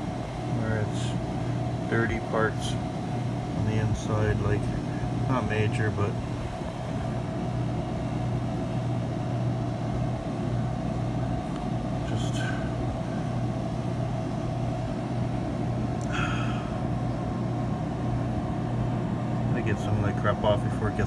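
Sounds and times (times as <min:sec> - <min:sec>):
freezer condensing unit hum: 0:00.0 - 0:21.0.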